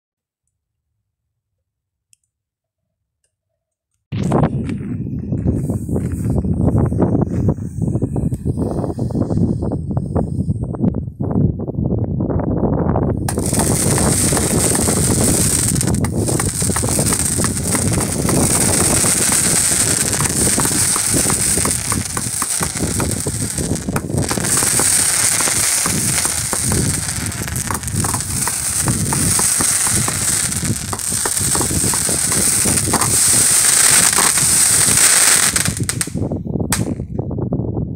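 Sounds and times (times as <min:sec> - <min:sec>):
firework cake shots launching: 0:13.3 - 0:37.0
dense firework crackling: 0:13.3 - 0:37.1.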